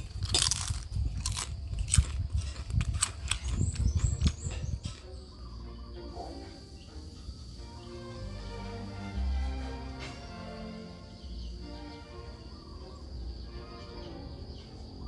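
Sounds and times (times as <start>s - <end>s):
crunching and chewing fried food: 0.0s - 5.3s
soft background music: 3.9s - 15.0s.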